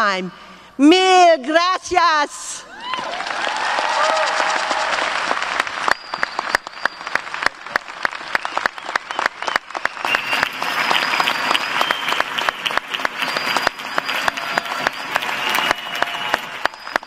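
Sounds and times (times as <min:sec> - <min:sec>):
large crowd clapping: 0:02.7 - 0:17.0
close individual claps: 0:02.9 - 0:17.0.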